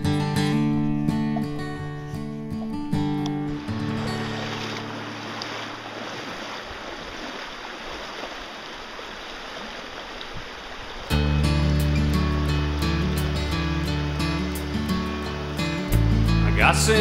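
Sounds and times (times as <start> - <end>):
loud music with guitar: 0.0 - 4.4, 11.1 - 17.0
river water rushing over rocks: 3.5 - 17.0
song: 11.1 - 17.0.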